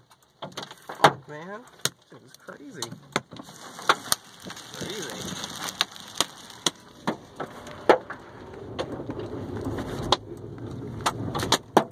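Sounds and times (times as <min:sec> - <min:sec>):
hailstones knocking on car: 0:02.8 - 0:08.2
hiss of falling hail: 0:03.4 - 0:10.2.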